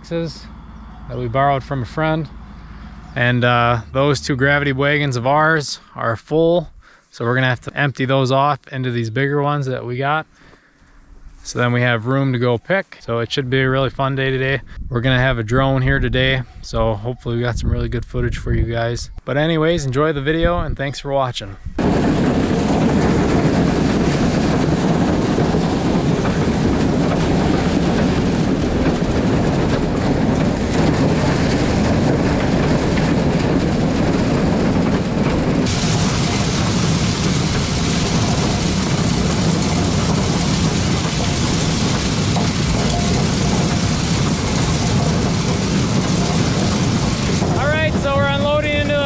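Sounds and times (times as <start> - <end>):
corn picker machine running: 21.8 - 49.0.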